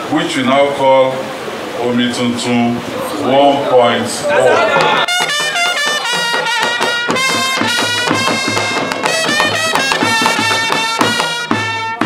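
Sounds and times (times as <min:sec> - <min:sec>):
wind instrument melody: 0:04.4 - 0:12.0
steady low beat: 0:05.1 - 0:12.0.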